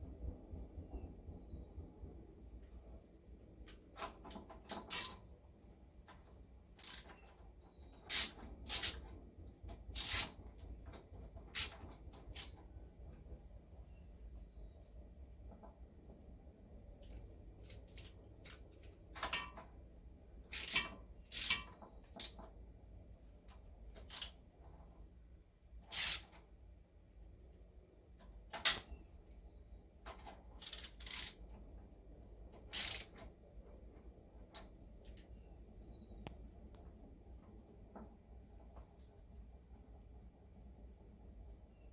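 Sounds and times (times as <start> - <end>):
sharp metal clink with ring: 28.6 - 29.0.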